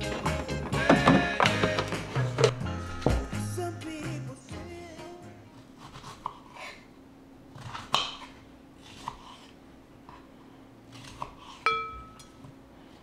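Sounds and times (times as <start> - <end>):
clink against ceramic bowl: 11.7 - 12.4.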